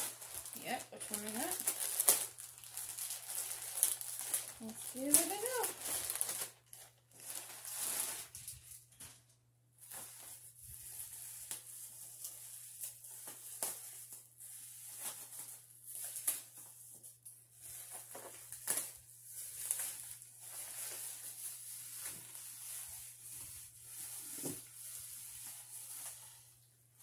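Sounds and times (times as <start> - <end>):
plastic wrapping crinkling: 0.0 - 9.2, 9.8 - 27.0.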